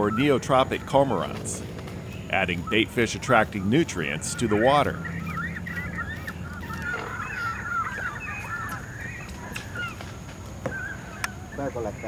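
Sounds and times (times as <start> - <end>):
cormorants squawking: 0.0 - 12.0.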